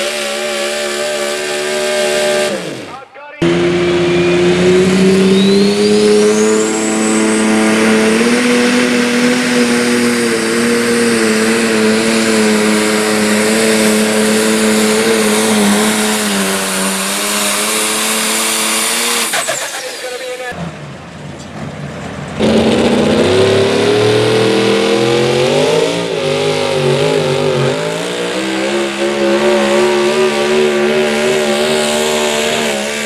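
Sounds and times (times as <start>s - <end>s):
diesel tractor engine under load: 0.0s - 33.0s
high whistle: 5.2s - 7.8s.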